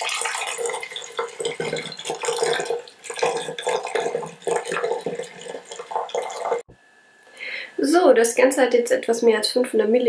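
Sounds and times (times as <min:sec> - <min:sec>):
syrup pouring into glass bottle: 0:00.0 - 0:06.6.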